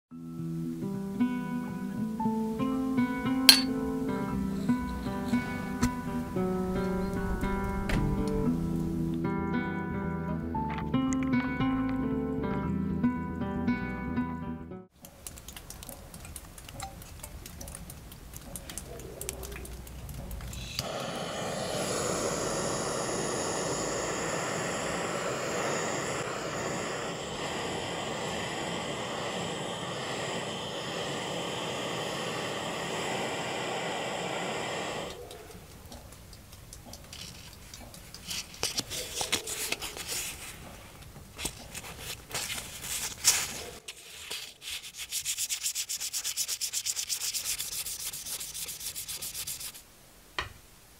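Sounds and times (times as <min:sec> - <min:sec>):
rushing hiss from nozzle: 0:20.6 - 0:35.3.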